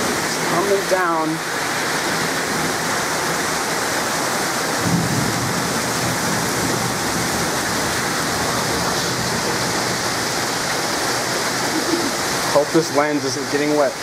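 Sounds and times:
heavy rain pouring: 0.0s - 14.0s
thunder rumble: 4.8s - 10.4s.

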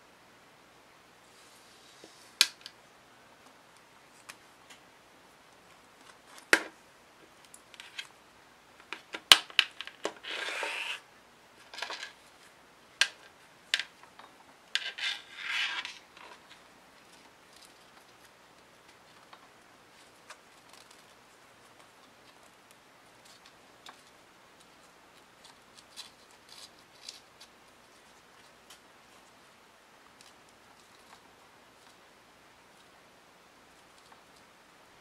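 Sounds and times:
straps rubbing: 10.1s - 11.1s, 14.8s - 18.3s.

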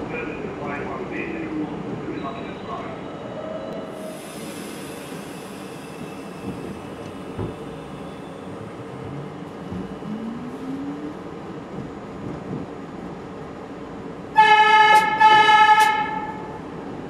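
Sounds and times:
subway train wheels rumbling on rail: 0.0s - 17.0s
track knocks: 6.4s - 8.0s.

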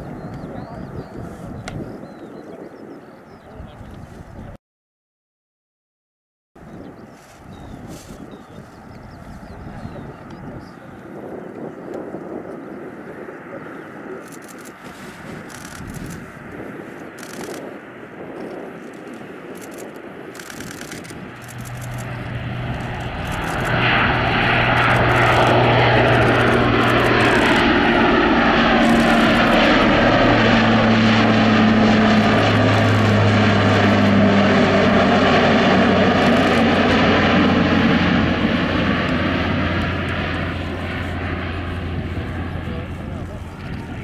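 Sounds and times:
propeller aircraft drone: 0.0s - 4.6s, 6.6s - 44.0s.

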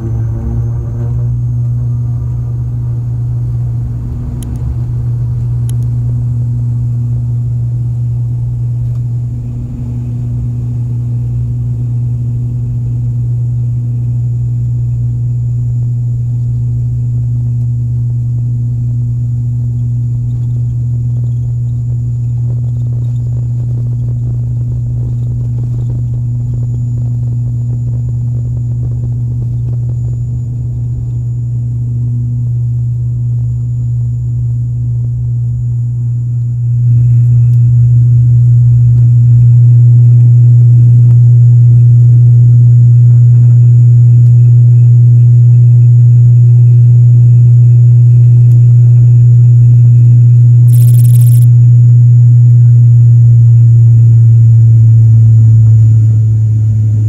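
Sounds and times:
propeller engine cabin drone: 0.0s - 57.0s.

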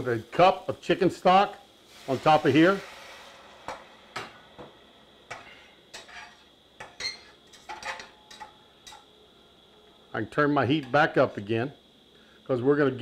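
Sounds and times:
metal spoon clinking in saucepan: 5.3s - 9.1s.

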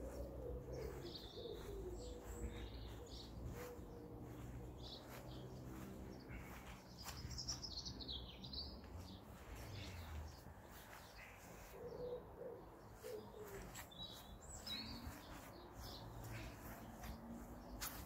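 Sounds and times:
pigeon cooing: 0.0s - 4.0s, 11.5s - 14.2s
small birds chirping: 0.0s - 18.0s.

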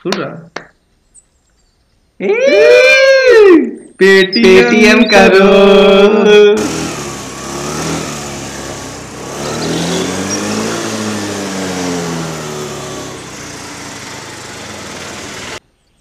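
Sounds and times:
motor scooter passing: 6.6s - 15.6s.

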